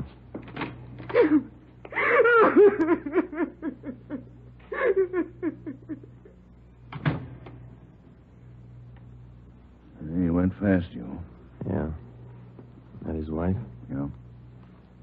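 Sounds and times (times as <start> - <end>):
woman sobbing: 1.1 - 6.4.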